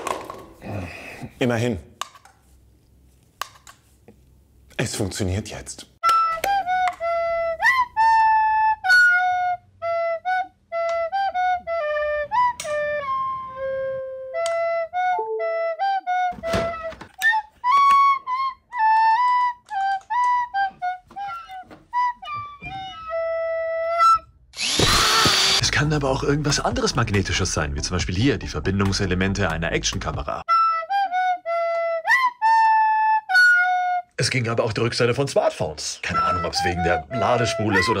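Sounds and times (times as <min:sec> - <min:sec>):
solo flute-like melody: 0:06.0 - 0:24.4, 0:30.5 - 0:34.1, 0:36.0 - 0:38.0.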